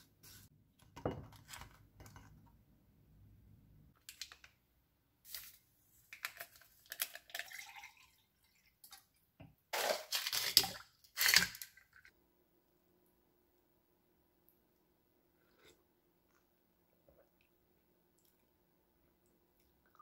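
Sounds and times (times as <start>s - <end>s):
liquid pouring into glass: 7.3s - 8.6s.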